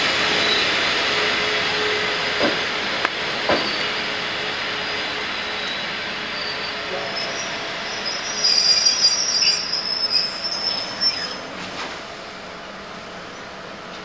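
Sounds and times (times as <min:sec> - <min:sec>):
train running noise: 0:00.0 - 0:14.0
high-pitched brake squeal: 0:03.5 - 0:04.2, 0:04.8 - 0:11.6.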